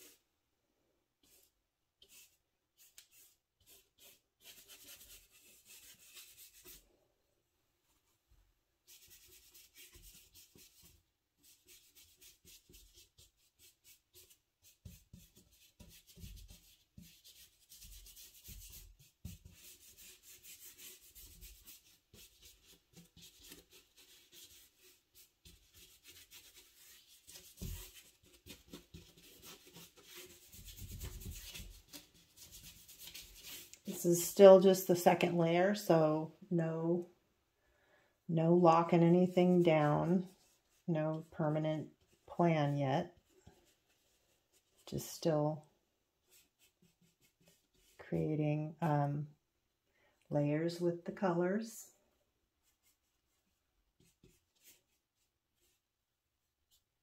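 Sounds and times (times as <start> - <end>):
paintbrush scrubbing on paper: 0.0 - 0.2, 1.2 - 6.9, 8.8 - 35.9, 38.5 - 42.4, 43.0 - 45.3, 46.2 - 48.0, 52.6 - 57.0.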